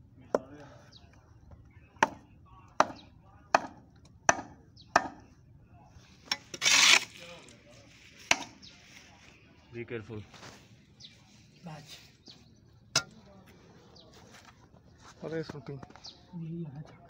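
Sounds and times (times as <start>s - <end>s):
blade scraping: 6.3s - 7.5s.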